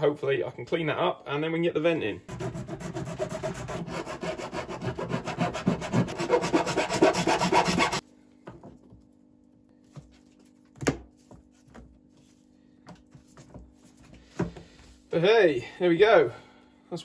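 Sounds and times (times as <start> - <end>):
hand file rasping on plastic: 2.3 - 8.0.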